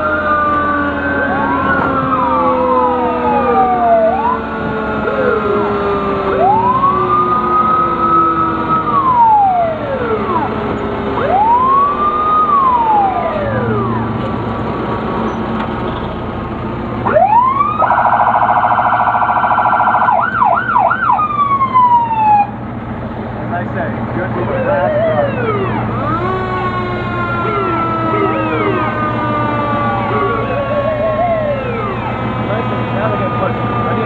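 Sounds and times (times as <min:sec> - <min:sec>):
siren yelp and whoops: 0:00.0 - 0:05.6, 0:06.3 - 0:10.5, 0:11.2 - 0:14.0, 0:17.1 - 0:22.5, 0:24.6 - 0:32.1
sirens wailing: 0:00.0 - 0:15.4, 0:17.0 - 0:34.0
vehicle engines running: 0:00.0 - 0:34.0.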